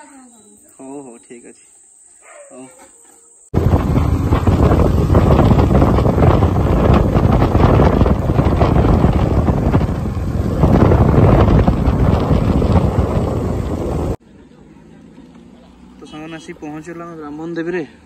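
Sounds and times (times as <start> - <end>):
motorcycle engine running: 3.5 - 14.2
wind buffeting microphone: 3.5 - 14.2
road noise: 3.5 - 18.0.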